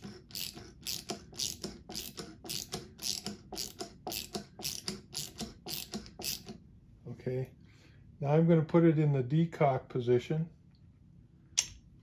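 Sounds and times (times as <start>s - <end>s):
socket ratchet clicking: 0.0s - 6.6s.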